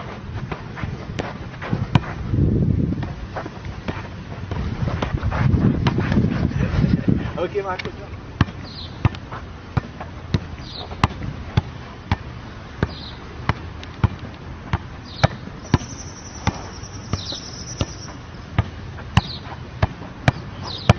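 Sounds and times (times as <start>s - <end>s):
football being kicked: 5.8s - 6.2s, 12.8s - 20.9s.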